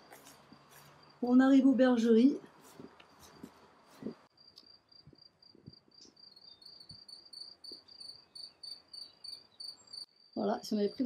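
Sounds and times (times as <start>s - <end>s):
cricket chirping: 3.0s - 11.0s.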